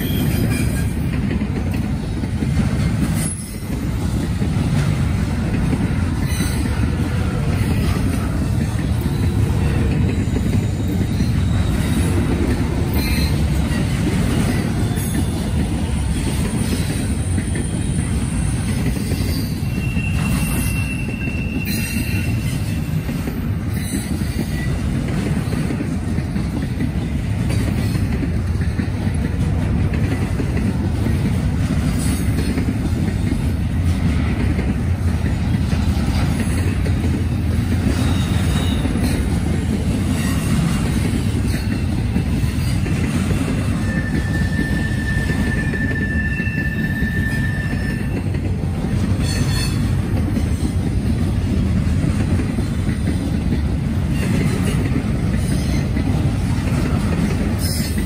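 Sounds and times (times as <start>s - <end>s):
freight train rumble: 0.0s - 58.0s
high wheel squeal: 10.1s - 12.2s, 16.1s - 23.0s, 43.7s - 48.3s.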